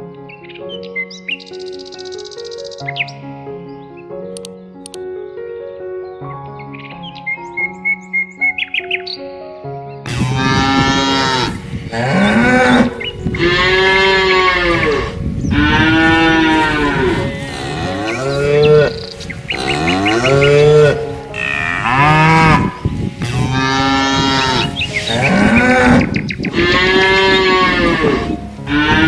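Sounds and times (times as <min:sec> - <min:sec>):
cattle mooing: 0:10.1 - 0:29.0.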